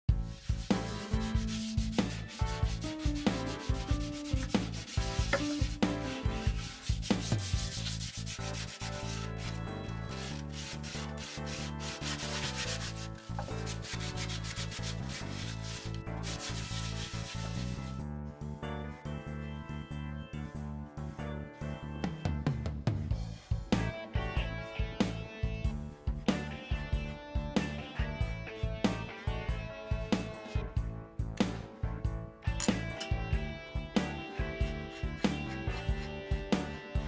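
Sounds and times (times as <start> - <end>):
hand sanding wood and rawhide: 0.2 - 17.9, 34.0 - 37.0.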